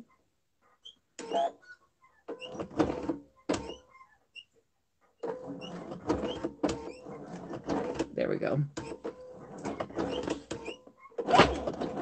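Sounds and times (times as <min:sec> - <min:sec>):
sewing machine stitching: 0:02.3 - 0:03.9, 0:05.2 - 0:12.0.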